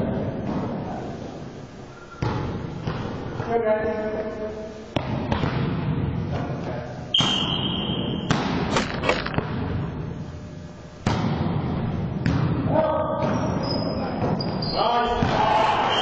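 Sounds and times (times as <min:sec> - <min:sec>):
volleyball smacks on gym floor: 0:07.2 - 0:07.5, 0:08.2 - 0:09.6, 0:11.0 - 0:11.6
hubbub of players: 0:12.7 - 0:16.0.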